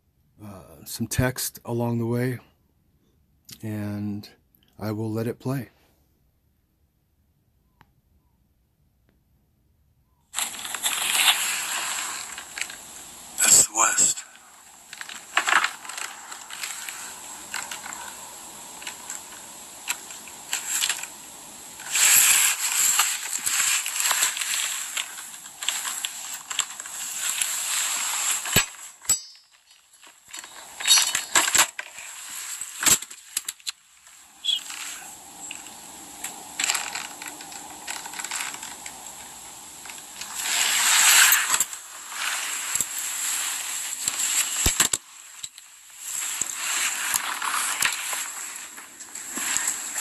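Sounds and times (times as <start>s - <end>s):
faint steady hum: 0.0s - 50.0s
phone handling rustling: 14.9s - 18.0s.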